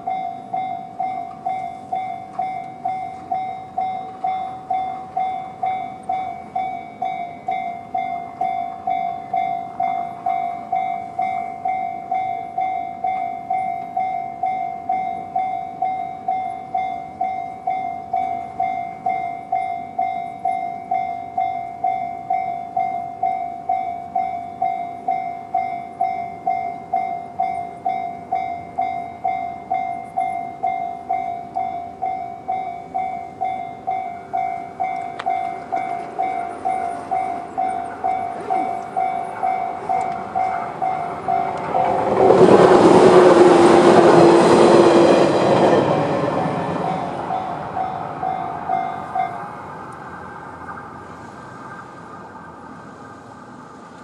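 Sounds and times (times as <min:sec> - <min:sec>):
level crossing bell ringing: 0:00.0 - 0:41.8.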